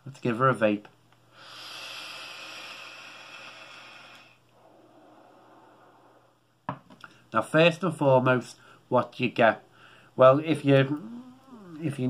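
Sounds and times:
airy hiss of inhaled air: 1.3s - 6.4s
breathy exhale: 1.3s - 6.4s.

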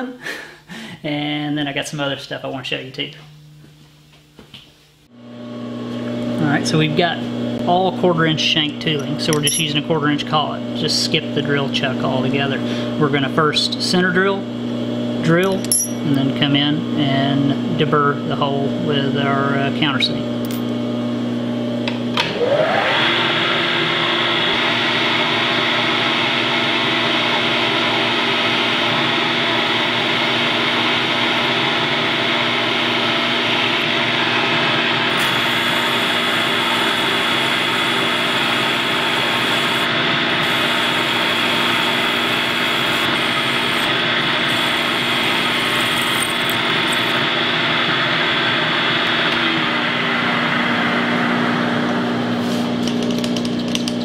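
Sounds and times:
milling machine spindle whine: 22.2s - 52.1s
drill cutting into metal: 33.6s - 47.6s.

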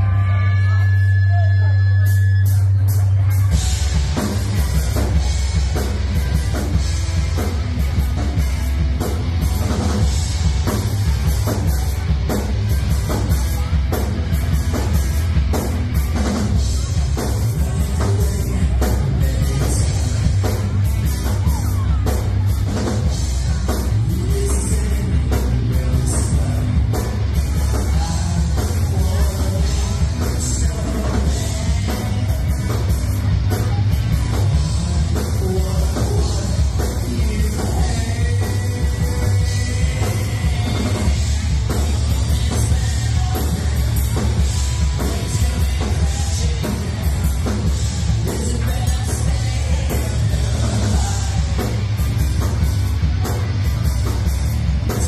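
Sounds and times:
driving drum beat: 0.0s - 55.0s
rock band playing live: 0.0s - 55.0s.

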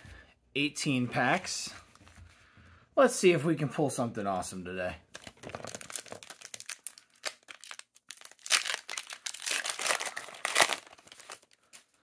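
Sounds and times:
foil wrapper crinkling and tearing: 5.1s - 11.8s.

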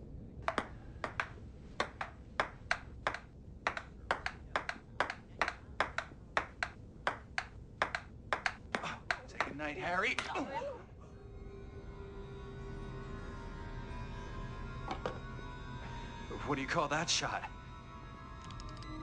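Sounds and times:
table tennis ball clicking: 0.4s - 9.6s.

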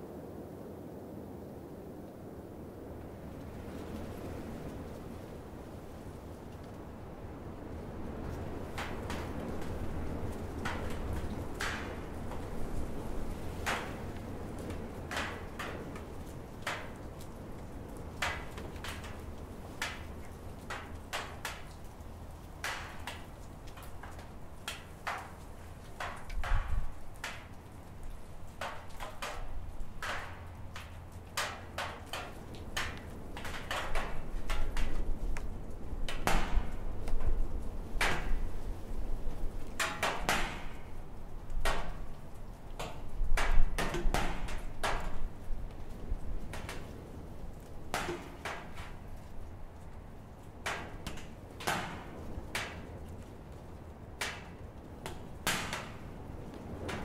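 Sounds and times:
gusty wind on microphone: 25.7s - 27.2s.

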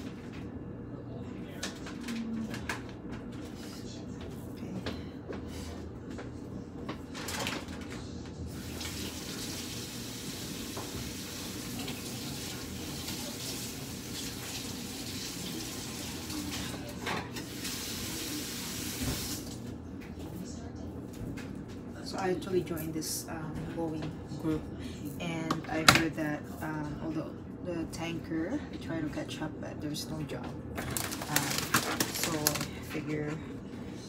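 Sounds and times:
faucet running into sink: 8.6s - 16.7s.

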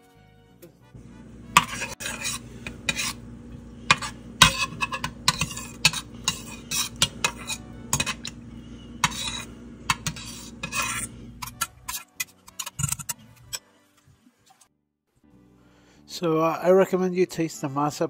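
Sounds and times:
low hum: 1.0s - 11.9s
metal spoon scraping a saucepan: 1.4s - 13.6s.

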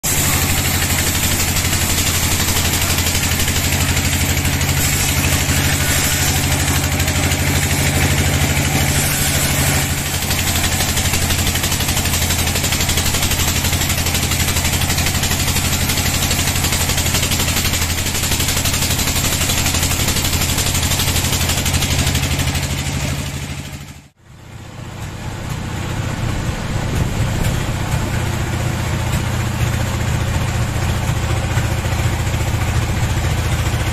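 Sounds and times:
saw blade cutting wood: 0.0s - 24.0s
sawmill drive running: 0.0s - 33.9s.

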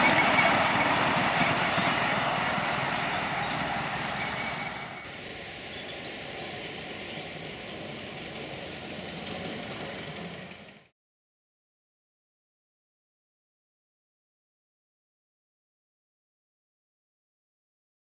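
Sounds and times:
miniature train wheels rumbling on rails: 0.0s - 10.9s.

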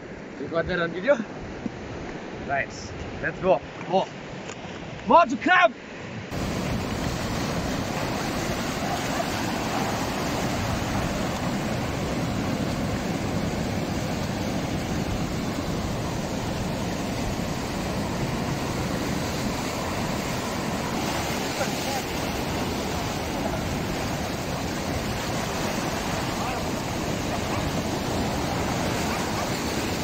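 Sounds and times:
sea surf breaking on rocks: 6.3s - 30.0s.

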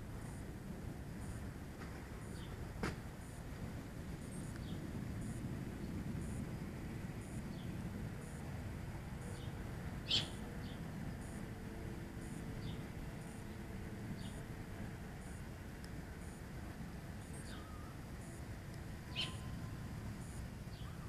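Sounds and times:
steady low rumble: 0.0s - 21.0s
bird chirp: 9.2s - 11.4s, 17.2s - 18.4s, 19.0s - 21.0s.

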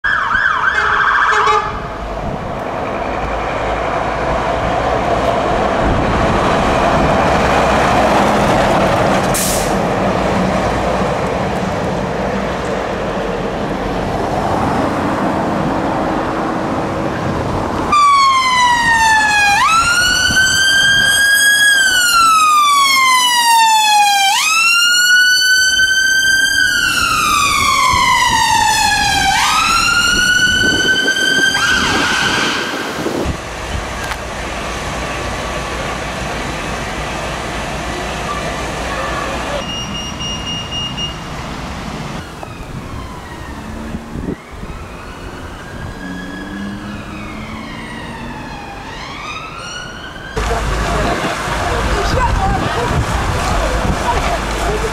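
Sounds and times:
ambulance siren wailing: 0.0s - 2.1s, 17.9s - 33.4s, 42.2s - 54.0s
road and engine noise: 0.0s - 54.9s.

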